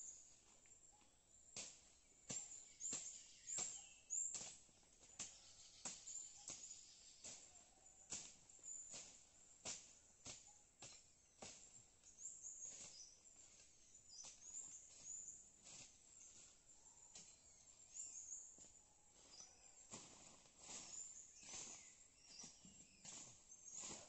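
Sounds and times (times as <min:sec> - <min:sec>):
high bird chirps: 0:20.7 - 0:24.0.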